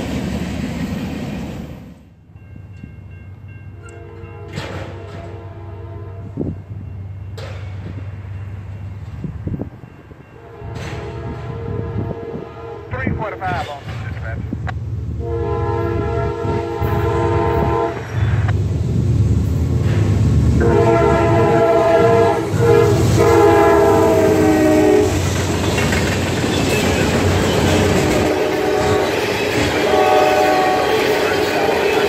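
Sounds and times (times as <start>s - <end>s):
train wheels on rails: 0.0s - 5.6s, 6.2s - 12.5s, 13.1s - 32.0s
train air horn blasts: 3.8s - 6.5s, 10.4s - 13.1s, 15.2s - 18.3s, 20.6s - 25.2s, 27.6s - 32.0s.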